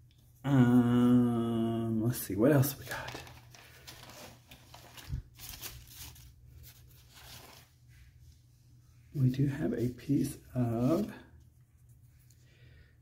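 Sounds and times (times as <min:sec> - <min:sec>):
paper rustling: 0:02.7 - 0:07.9, 0:09.8 - 0:12.3.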